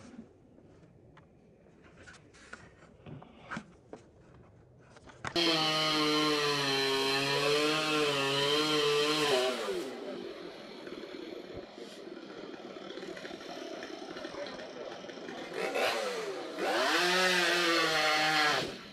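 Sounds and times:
chainsaw running: 5.3 - 18.9.

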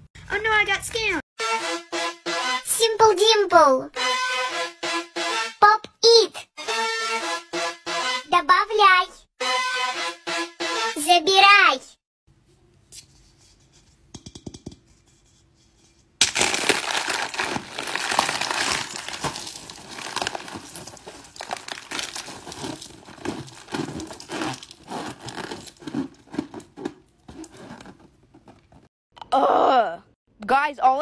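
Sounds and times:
crinkly material crumpling: 16.2 - 28.9.

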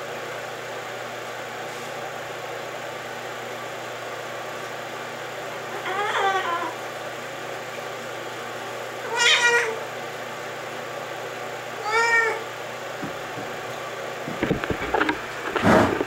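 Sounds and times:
cat meowing: 5.7 - 6.8, 9.0 - 9.9, 11.8 - 12.5
soft thumps: 13.0 - 13.6.

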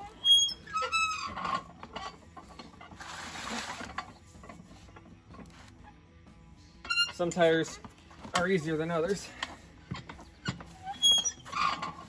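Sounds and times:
lever and tire squeaking: 0.0 - 12.0.

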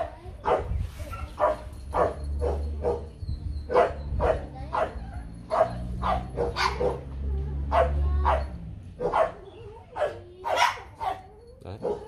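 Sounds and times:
dogs barking: 0.0 - 12.0.

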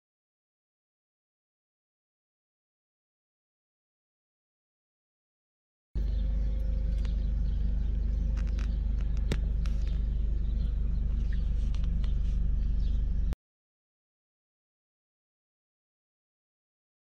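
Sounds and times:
engine and road rumble in car: 6.0 - 13.4
sharp clicks: 6.9 - 12.2.

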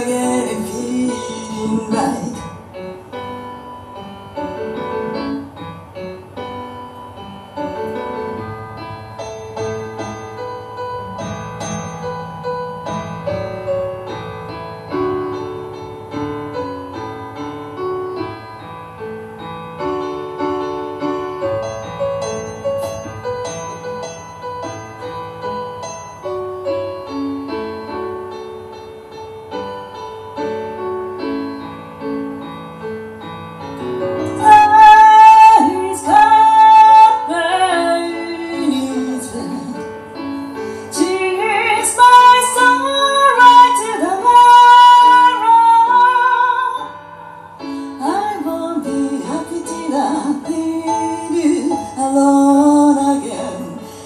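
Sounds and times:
woman singing: 0.0 - 2.6, 34.2 - 40.0, 40.8 - 54.0
keyboard piano playing: 0.0 - 54.0.

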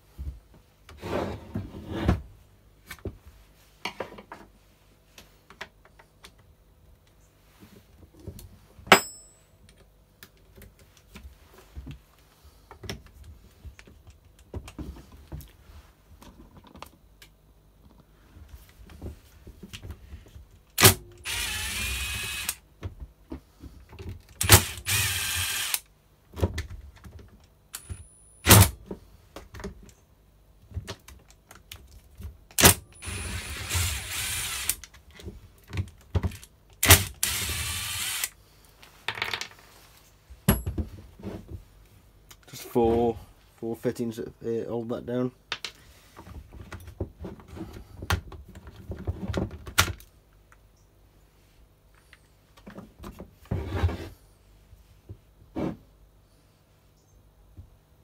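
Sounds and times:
metallic clink with ring: 8.9 - 9.5.

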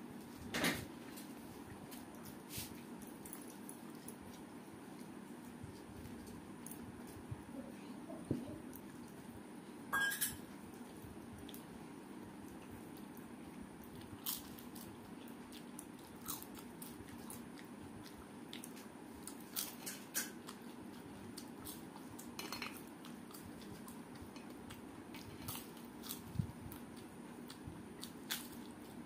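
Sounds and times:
chewing: 1.1 - 7.2, 12.4 - 29.0.

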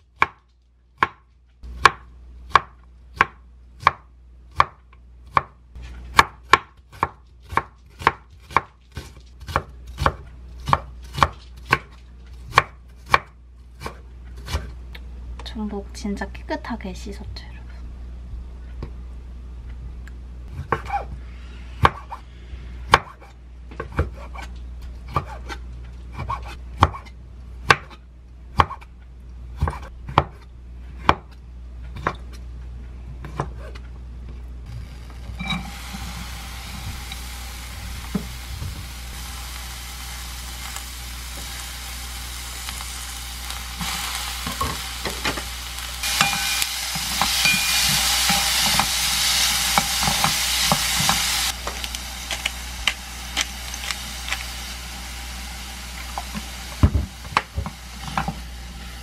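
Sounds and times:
knife chopping on wooden board: 1.8 - 14.7, 25.1 - 28.9, 29.6 - 30.4
food sizzling in a pan: 34.7 - 59.0.

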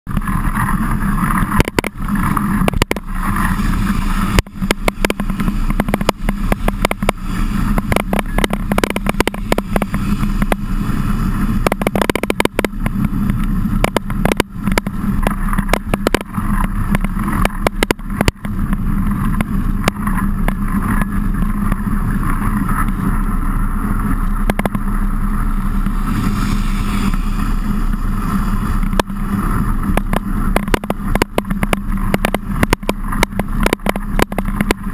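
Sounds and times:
mountain bike riding: 0.1 - 34.9
irregular knocks and clicks: 1.5 - 3.1, 4.3 - 10.6, 11.6 - 21.8, 24.4 - 24.8, 29.8 - 34.9.

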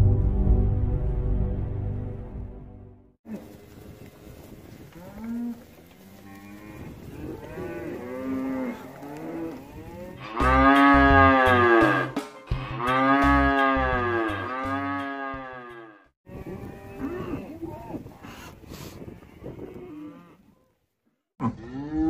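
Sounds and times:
cattle mooing: 5.0 - 18.0.

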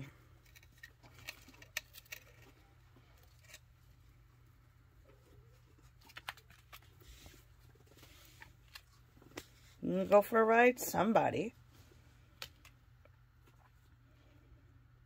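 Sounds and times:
low steady hum: 0.0 - 15.0
animals clicking and scratching on wood: 0.3 - 3.6.

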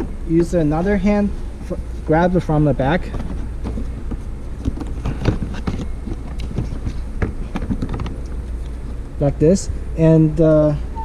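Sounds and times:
steady low hum: 0.0 - 11.0
plastic housing clicking and knocking: 3.1 - 8.2.

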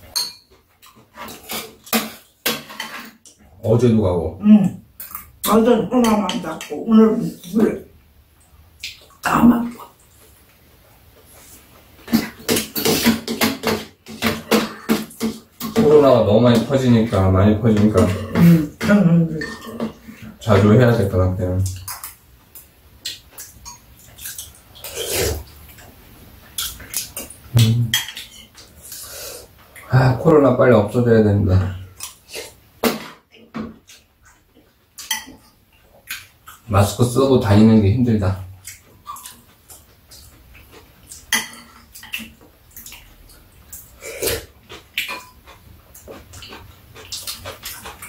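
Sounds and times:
spoons clinking on bowls: 0.1 - 0.5
noisy mouth sound: 24.8 - 25.5.

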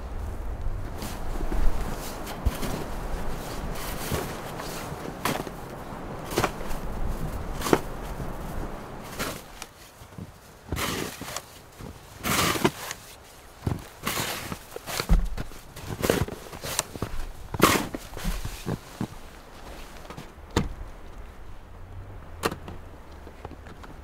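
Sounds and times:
shovel scraping wet snow: 10.7 - 11.6, 12.2 - 13.2, 13.9 - 15.1, 15.8 - 19.1.

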